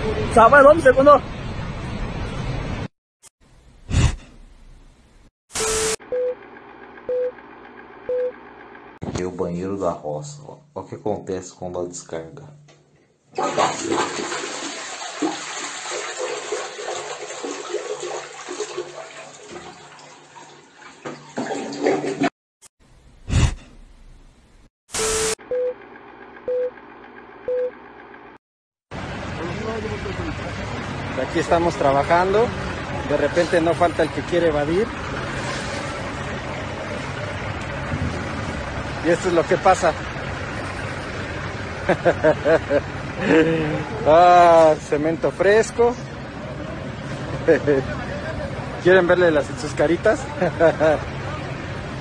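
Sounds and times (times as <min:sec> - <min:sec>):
short beeps: 0:05.6 - 0:06.4, 0:07.1 - 0:07.4, 0:08.1 - 0:08.4, 0:25.0 - 0:25.8, 0:26.5 - 0:26.7, 0:27.5 - 0:27.8.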